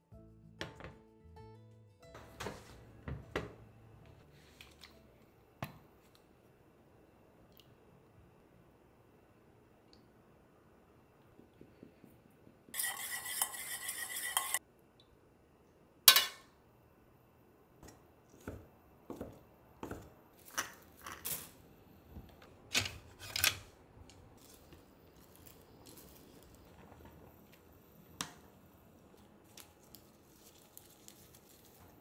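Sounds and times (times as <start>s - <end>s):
spoon stirring in metal cup: 12.7s - 14.6s.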